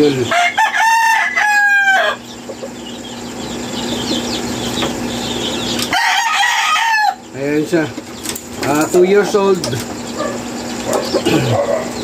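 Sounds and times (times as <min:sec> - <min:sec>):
high chirping of fowl: 0:00.0 - 0:12.0
rooster crowing: 0:00.2 - 0:02.4, 0:05.8 - 0:07.4.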